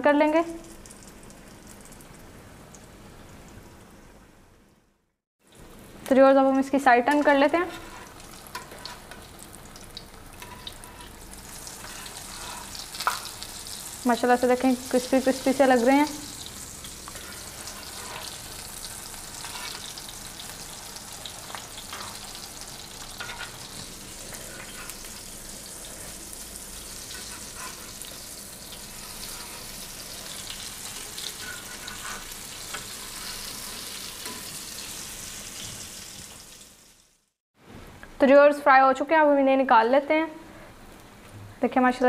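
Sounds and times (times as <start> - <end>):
cutlets sizzling in hot oil: 5.4 - 37.4.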